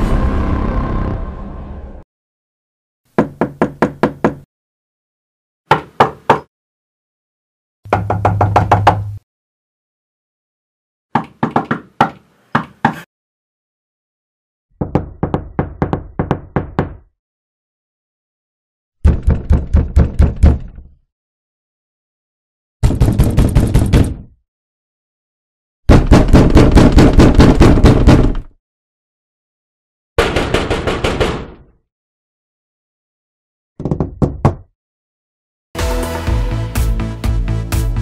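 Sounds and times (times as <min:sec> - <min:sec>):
knuckles knocking on door: 0:03.2 - 0:04.4, 0:07.9 - 0:09.1, 0:11.2 - 0:13.0, 0:14.8 - 0:17.0, 0:19.1 - 0:20.7, 0:33.8 - 0:34.7.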